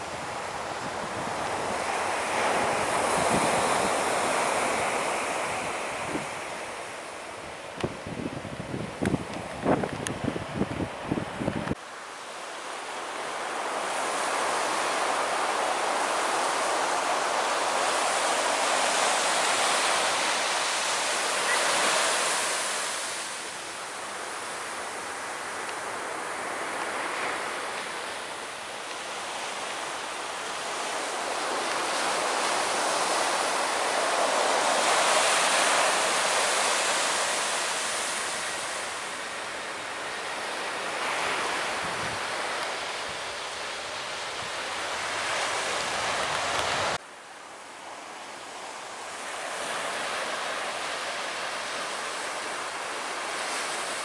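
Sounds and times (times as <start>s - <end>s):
wind on microphone: 0.0s - 6.9s, 7.5s - 11.8s, 41.0s - 47.0s
surf breaking on beach: 0.0s - 11.8s, 12.4s - 47.0s.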